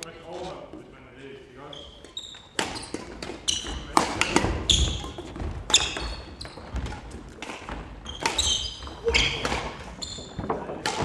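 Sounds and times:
shoes squeaking on floor: 1.4s - 10.8s
shuttlecock hits: 3.9s - 4.7s.

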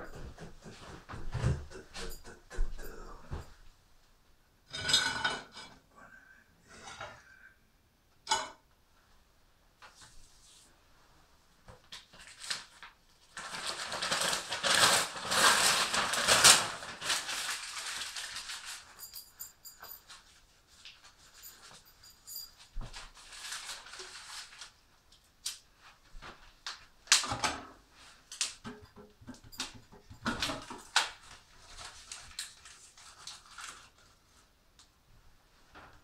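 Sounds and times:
newspaper crumpling: 12.0s - 19.0s, 23.0s - 24.8s, 31.0s - 34.5s.

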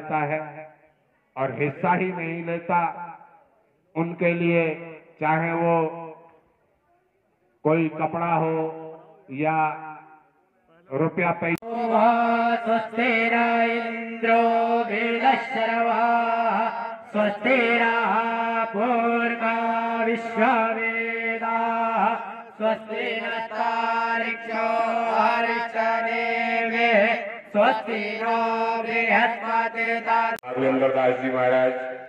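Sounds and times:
man chanting: 1.4s - 3.1s, 4.0s - 6.2s, 10.7s - 32.0s.

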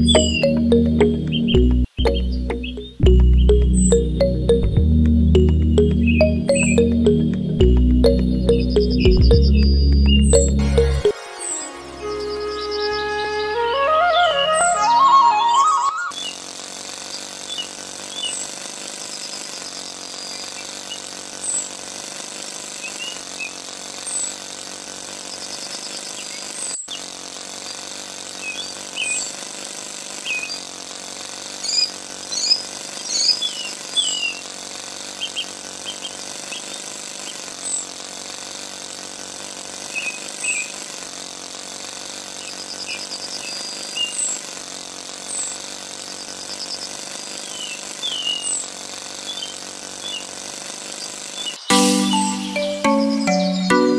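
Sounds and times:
birds chirping: 0.0s - 16.3s, 51.5s - 53.9s
small electric motor buzzing: 11.1s - 51.8s
cutter chopping grass: 16.1s - 53.9s.

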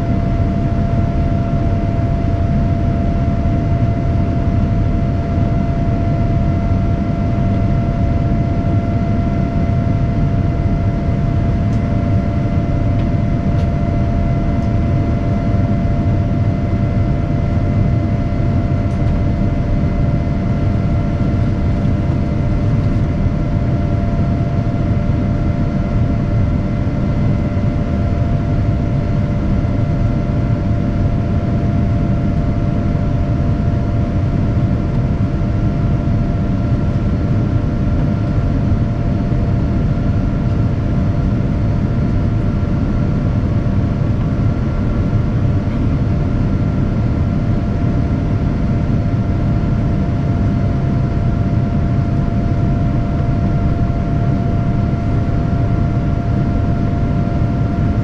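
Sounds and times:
engine and air rumble: 0.0s - 58.0s.

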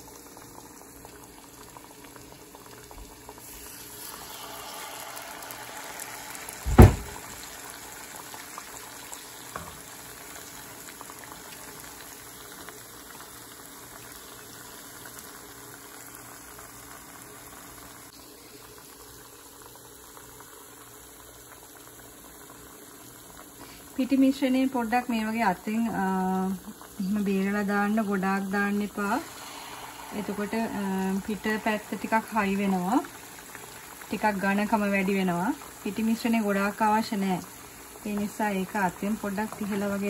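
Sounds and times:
oil bubbling and sizzling: 0.0s - 40.0s
sharp knock: 6.6s - 7.2s.

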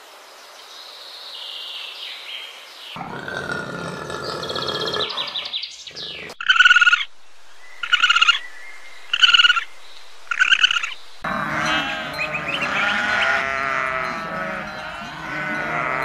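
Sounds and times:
coati trilled chirps: 3.0s - 7.1s, 7.8s - 8.4s, 9.1s - 9.6s, 10.3s - 16.0s
sheep bleating: 11.2s - 16.0s.

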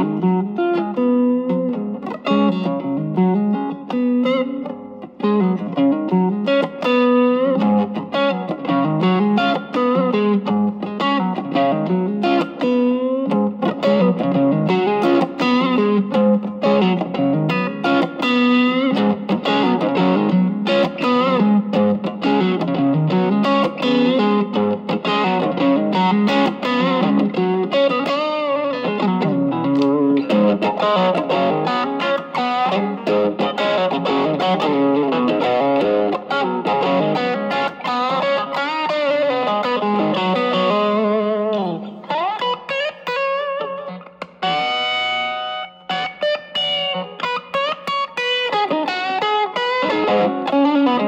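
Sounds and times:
overdriven electric guitar: 0.0s - 51.0s.

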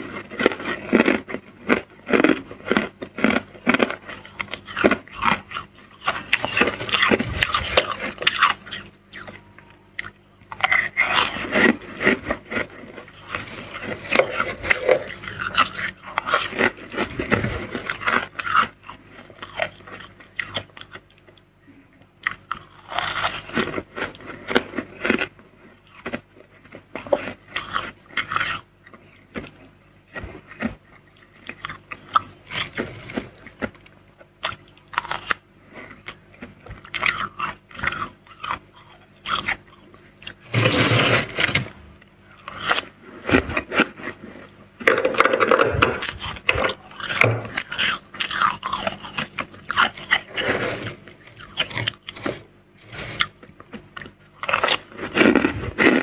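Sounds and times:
spoon scraping freezer frost: 0.0s - 20.9s, 39.2s - 56.0s.

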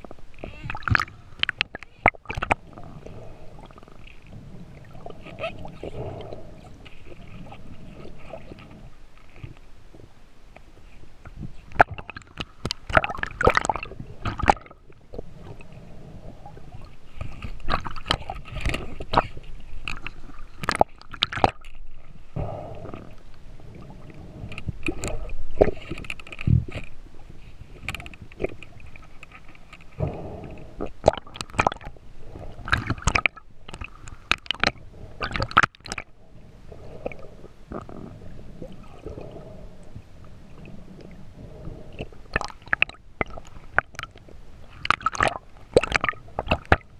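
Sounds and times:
underwater clicks and knocks: 0.0s - 2.9s, 10.6s - 15.2s, 17.2s - 21.8s, 24.4s - 27.0s, 27.8s - 32.0s, 32.6s - 36.1s, 41.9s - 46.9s
muffled underwater rumble: 0.0s - 46.9s.

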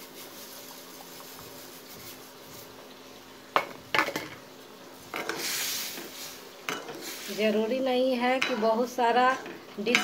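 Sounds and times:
faint simmering hiss: 0.0s - 10.0s
steel spoon clanking on pan: 6.7s - 7.0s, 8.3s - 10.0s.

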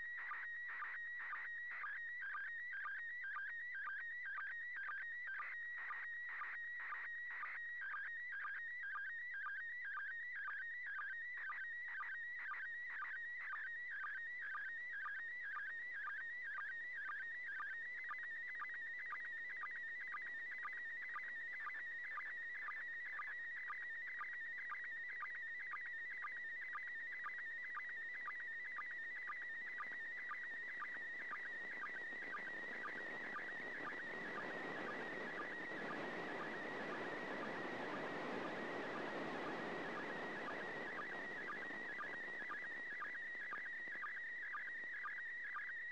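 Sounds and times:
radio hiss: 31.4s - 43.1s.

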